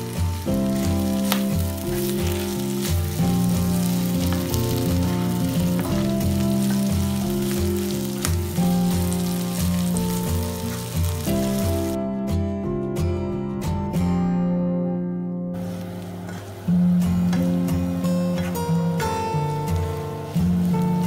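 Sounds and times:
spatula tapping pan: 0.0s - 11.8s
clams sizzling in a pan: 0.0s - 12.0s, 15.6s - 18.2s, 18.9s - 21.0s
background music with bass line: 0.0s - 15.5s.

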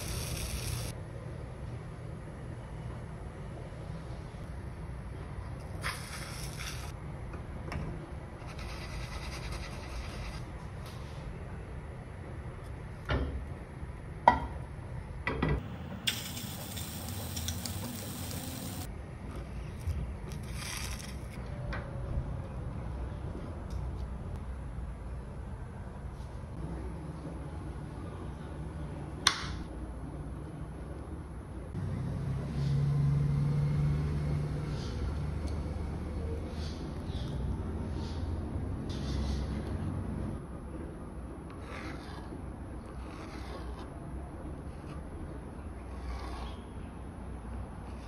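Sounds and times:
batter sizzling in a pan: 16.1s - 18.9s.

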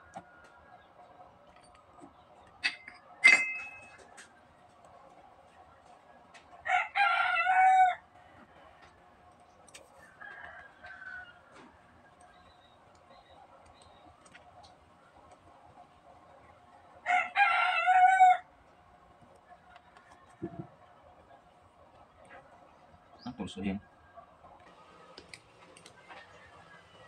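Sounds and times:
rooster crowing: 6.6s - 8.9s, 10.0s - 12.0s, 17.0s - 18.5s.

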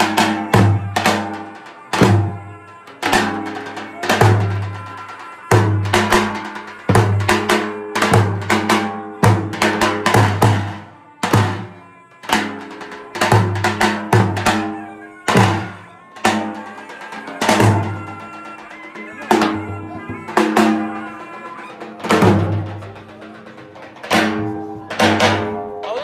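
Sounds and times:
bass drum beaten with stick: 22.0s - 25.7s.

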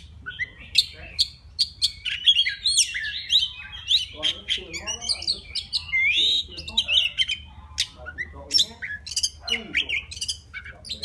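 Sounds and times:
bird singing varied whistles: 0.0s - 7.4s.

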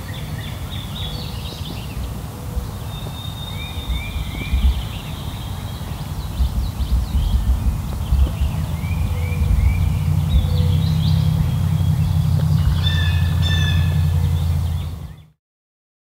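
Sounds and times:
songbirds chirping: 0.0s - 15.4s
loud low rumble: 5.9s - 15.4s.

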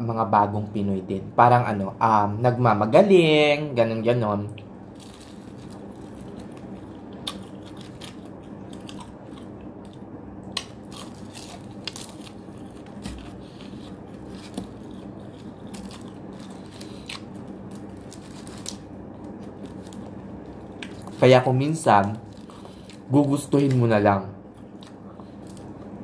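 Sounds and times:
steady low hum: 0.0s - 26.0s
crunchy chicken being chewed: 4.9s - 23.8s, 24.5s - 26.0s.

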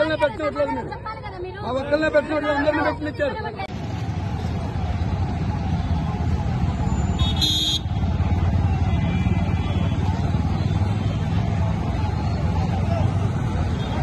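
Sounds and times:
road traffic rumble: 0.0s - 14.0s
short horn beep: 7.1s - 7.9s.

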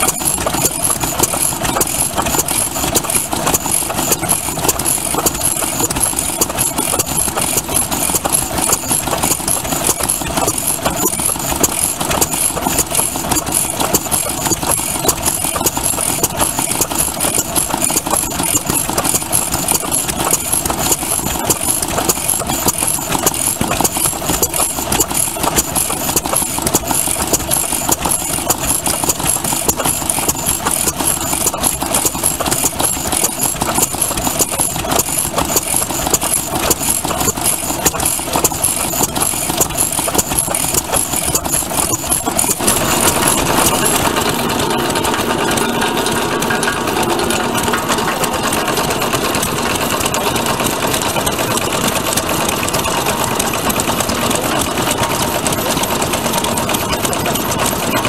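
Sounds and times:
belt-driven grinder rattling: 0.0s - 58.0s
stationary engine running: 0.0s - 58.0s.

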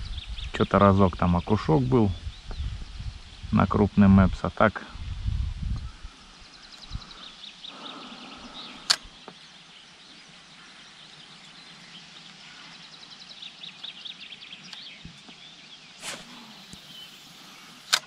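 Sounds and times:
fishing line hissing out: 16.0s - 18.0s
sharp loud reel click: 16.0s - 18.0s.

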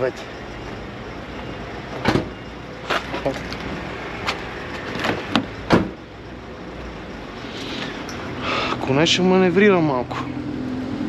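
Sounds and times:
sharp knocks and clanks: 4.3s - 6.0s.

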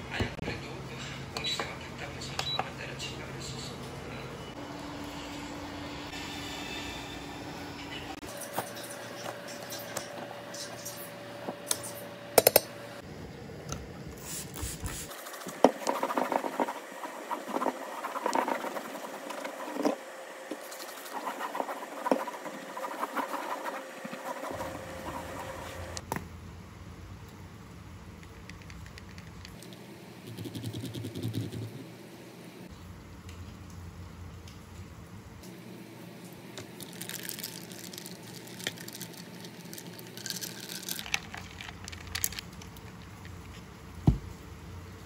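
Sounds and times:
rag wiping tiled worktop: 14.2s - 26.0s.

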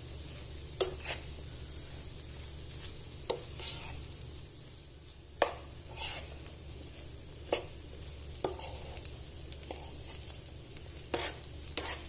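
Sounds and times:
spoon scraping frying pan: 0.3s - 1.4s, 2.7s - 4.1s, 5.4s - 12.0s.

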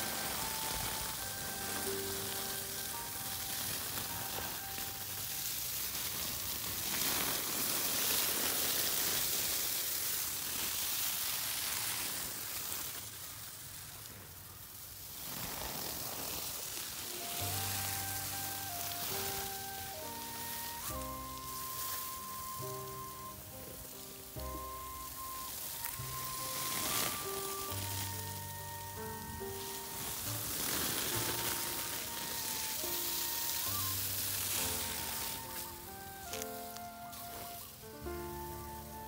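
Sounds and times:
background music with held notes: 0.0s - 7.3s, 17.1s - 39.0s
water spraying onto straw: 0.0s - 39.0s.

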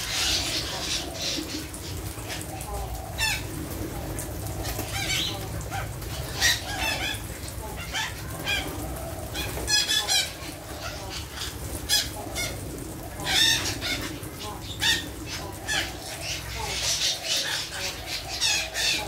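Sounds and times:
parakeets screeching: 0.0s - 3.5s, 4.6s - 19.0s
wings flapping: 3.2s - 7.3s.

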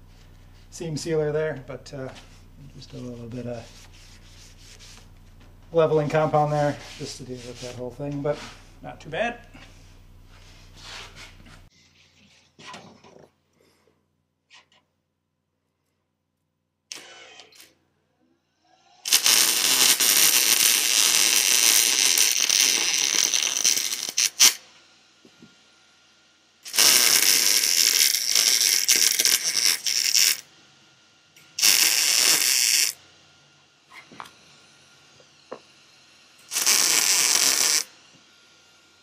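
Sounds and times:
welder arc crackling and sizzling: 19.0s - 24.6s, 26.6s - 30.5s, 31.4s - 33.0s, 36.4s - 38.0s.

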